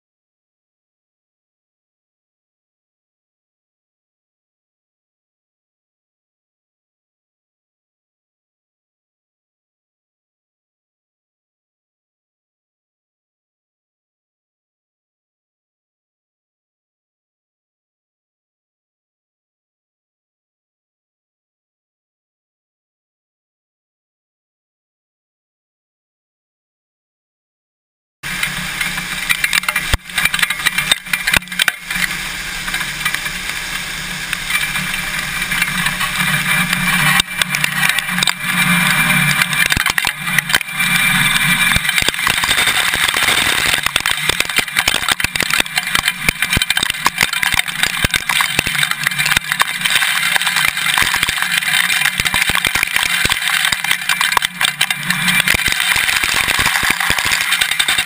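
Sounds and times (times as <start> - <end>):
grain pouring with rushing hiss: 28.3 - 58.0
kernels pattering on camera: 28.3 - 58.0.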